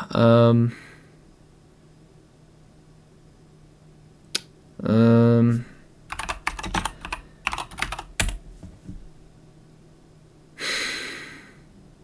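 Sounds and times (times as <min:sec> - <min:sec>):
keyboard typing: 0:06.1 - 0:08.7.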